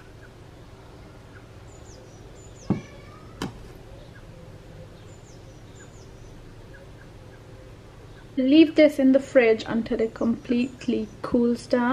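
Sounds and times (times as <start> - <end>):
faint bird chirps: 0.0 - 8.4
low steady hum: 0.0 - 11.9.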